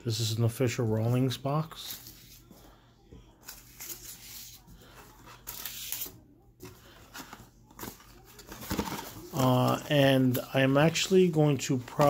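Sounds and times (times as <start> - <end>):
plastic and cardboard crinkling: 3.4 - 12.0.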